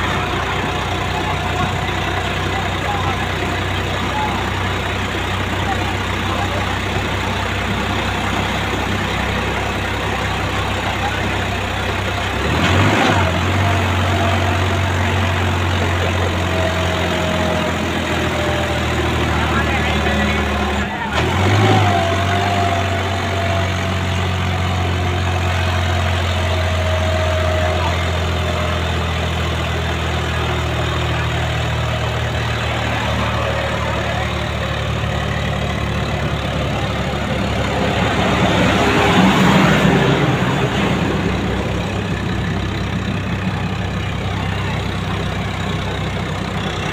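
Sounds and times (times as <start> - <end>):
vehicle engine running: 0.0 - 46.9
vehicle passing by: 36.5 - 42.5.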